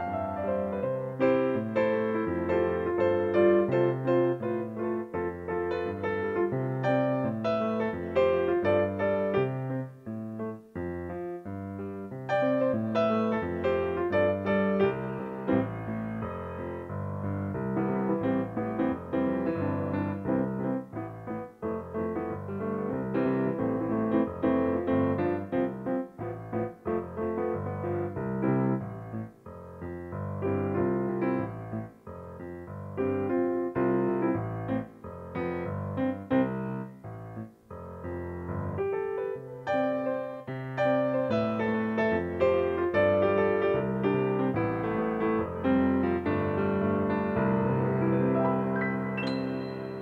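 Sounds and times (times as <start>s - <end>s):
slow piano chords: 0.0s - 50.0s.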